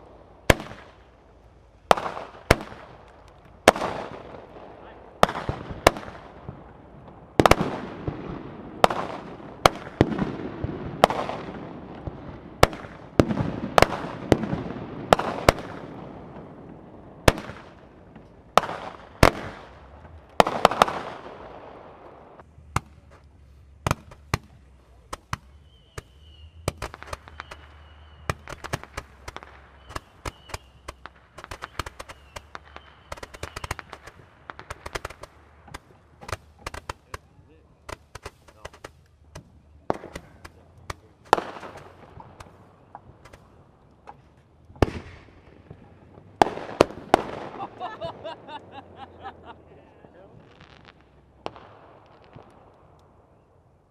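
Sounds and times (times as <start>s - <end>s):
firework bangs with echoing rumble: 0.0s - 53.4s
firework pops and crackles: 0.0s - 53.4s.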